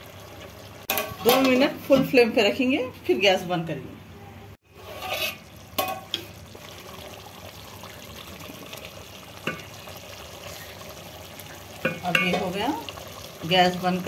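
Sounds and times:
curry bubbling in a pot: 4.6 - 14.0.

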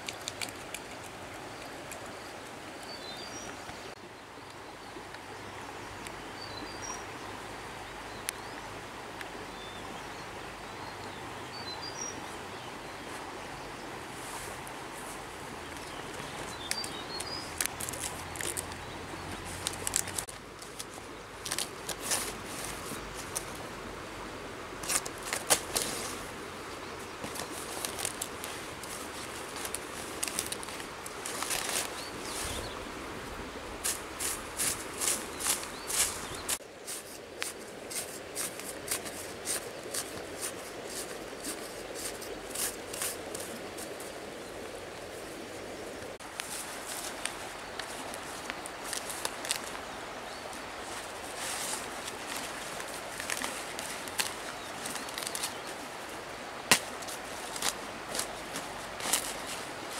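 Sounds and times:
leaves rustling and crackling: 0.0 - 59.9
steady outdoor hiss: 0.0 - 59.9
bird chirping: 15.6 - 20.3, 35.0 - 36.6
knife scraping soil: 33.8 - 44.2.

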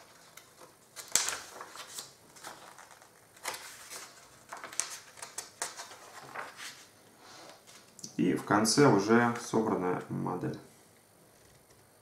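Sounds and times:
paper booklet pages rustling: 0.0 - 8.5.

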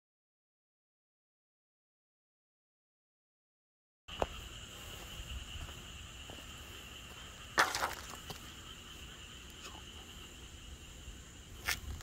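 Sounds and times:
crickets trilling: 4.1 - 12.0.

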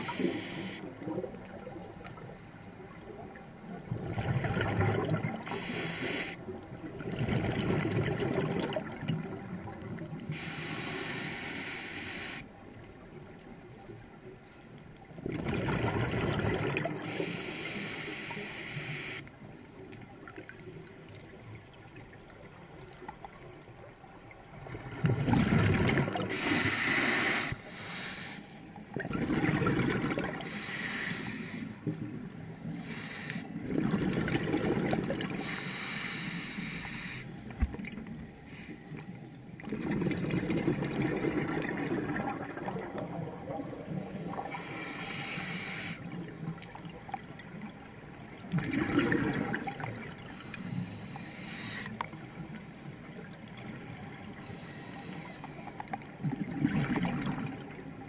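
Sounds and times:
regulator inhalation hiss: 0.0 - 0.9, 5.5 - 6.4, 10.3 - 12.4, 17.0 - 19.2, 26.3 - 28.6, 30.4 - 31.8, 32.6 - 33.5, 35.4 - 37.4, 44.5 - 46.0, 50.3 - 52.0, 54.5 - 55.6
bubbles gurgling underwater: 3.8 - 5.5, 6.8 - 10.2, 15.2 - 17.0, 24.6 - 26.4, 28.9 - 30.4, 33.6 - 35.4, 39.6 - 44.6, 46.5 - 50.2, 56.2 - 58.0.

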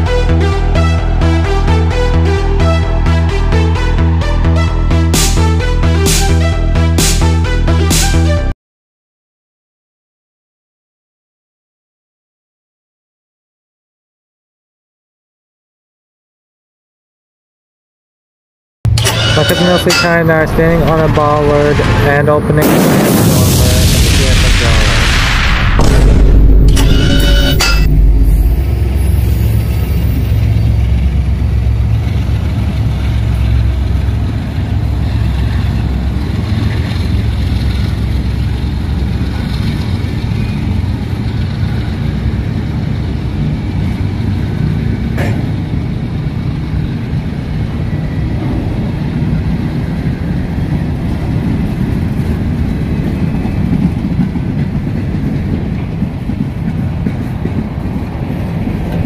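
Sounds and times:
deep drone: 0.0 - 8.5, 18.9 - 52.2
train wheels rumbling on rail: 26.5 - 59.0.

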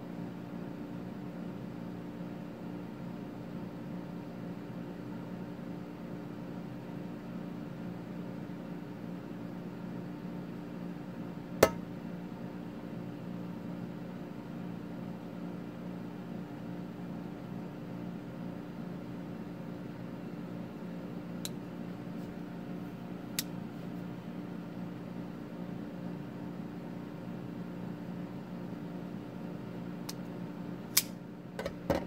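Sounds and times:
steady low hum: 0.0 - 32.0
folding knife metallic click: 30.9 - 31.2.

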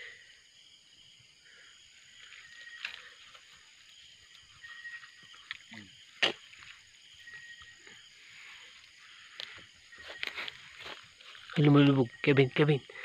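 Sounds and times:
night insects chorus: 0.0 - 13.0.

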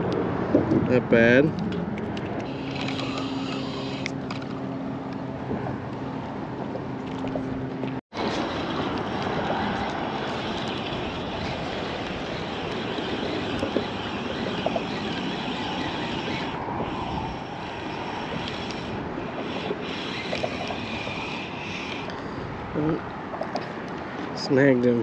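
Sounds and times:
wind rushing over microphone: 0.0 - 25.0.

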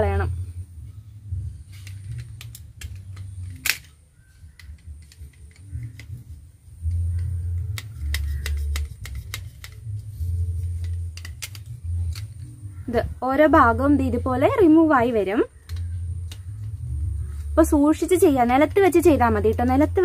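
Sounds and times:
low rumble: 0.0 - 20.0
plastic fitting clicking and cracking: 1.8 - 6.3, 10.8 - 12.5, 15.6 - 16.8.

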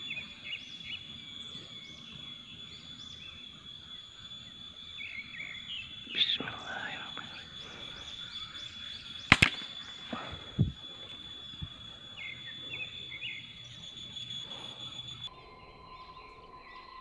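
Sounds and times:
birds chirping: 0.0 - 17.0
air rifle shot crack: 9.3 - 10.2.

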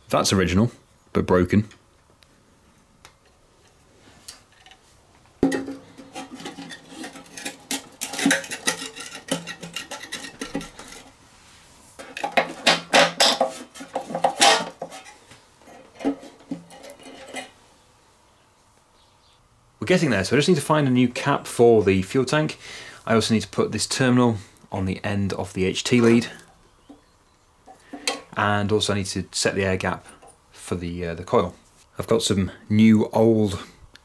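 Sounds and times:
small metal parts clinking: 5.4 - 11.1.

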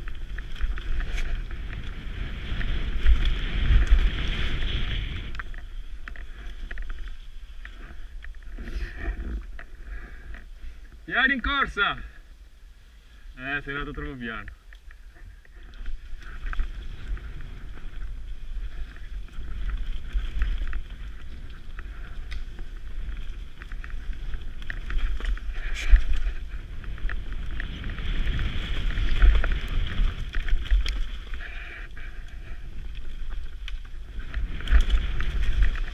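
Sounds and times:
bike tyres hissing on dirt: 0.0 - 9.2, 15.7 - 35.9
wind buffeting microphone: 14.0 - 35.9.

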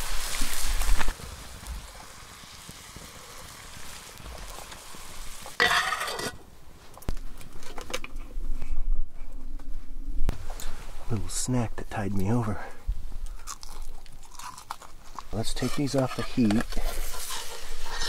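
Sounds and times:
food sizzling in a pan: 0.0 - 6.3, 16.1 - 18.0.

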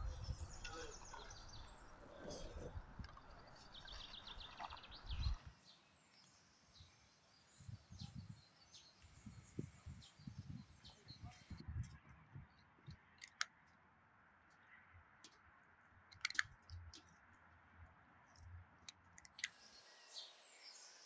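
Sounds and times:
small birds chirping: 0.0 - 13.4, 19.3 - 21.0
outdoor ambience: 0.0 - 21.0.

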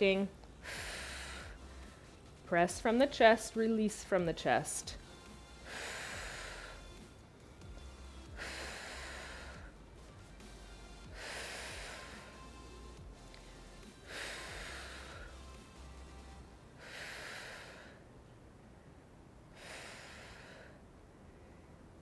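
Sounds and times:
person breathing forcefully: 0.6 - 2.2, 5.6 - 7.1, 8.2 - 9.9, 11.0 - 12.5, 13.4 - 15.6, 16.8 - 18.0, 19.5 - 20.8.

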